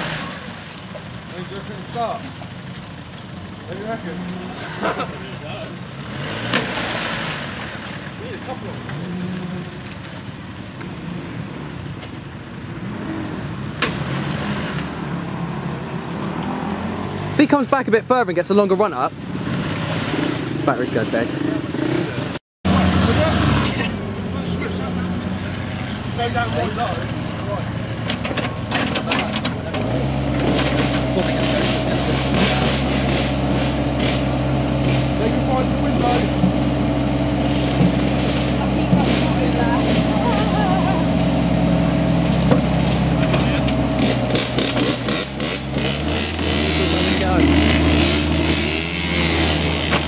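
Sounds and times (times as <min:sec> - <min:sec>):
vehicle engine rumble: 0:00.0 - 0:50.0
bucket scraping against vehicle: 0:27.8 - 0:41.2, 0:42.1 - 0:50.0.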